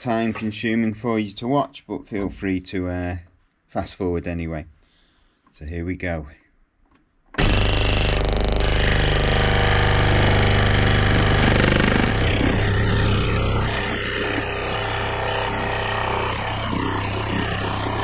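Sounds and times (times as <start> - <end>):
scroll saw cutting wood: 7.4 - 18.0.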